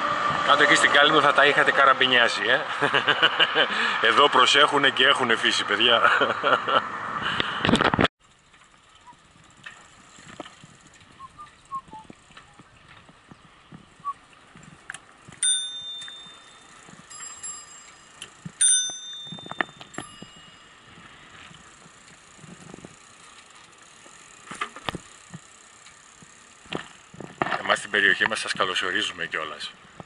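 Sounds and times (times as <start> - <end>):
bicycle rattling over pavement: 0.1 - 6.4, 7.6 - 30.0
bicycle bell dings: 15.4 - 20.9.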